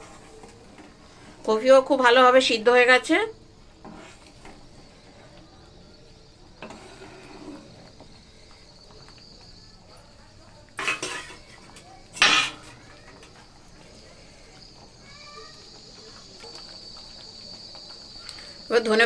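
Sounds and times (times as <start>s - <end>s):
spatula stirring in metal pan: 0.0s - 1.7s, 3.6s - 8.4s, 10.8s - 13.6s
food boiling: 0.0s - 19.0s.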